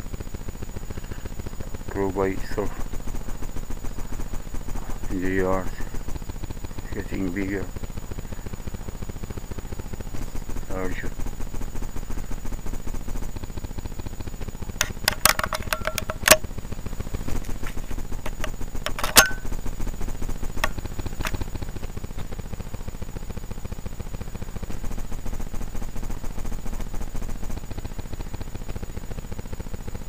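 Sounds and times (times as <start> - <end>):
sharp clicks: 14.8 - 16.5, 17.5 - 19.6, 20.6 - 21.4.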